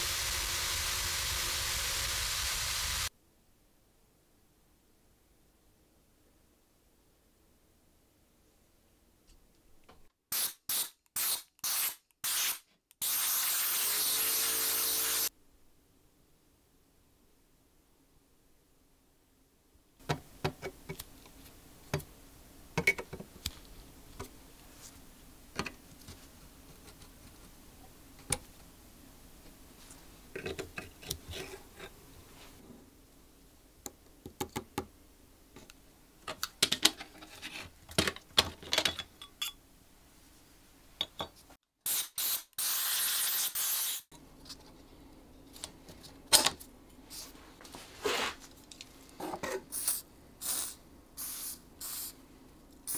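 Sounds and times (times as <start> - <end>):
steady hiss: 0.0 - 3.1, 49.7 - 52.9.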